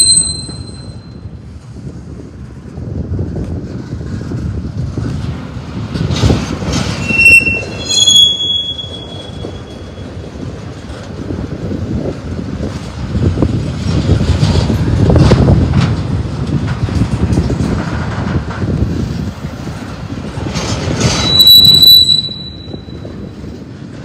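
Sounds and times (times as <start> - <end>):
high-pitched wheel squeals: 0.0 - 1.2, 7.0 - 10.3, 21.0 - 23.3
train wheels rumbling on rail: 0.0 - 24.0.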